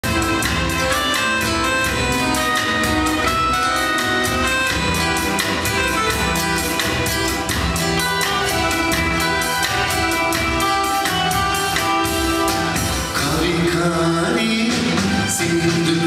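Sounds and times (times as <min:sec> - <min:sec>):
live band playing pop instrumental: 0:00.0 - 0:16.0.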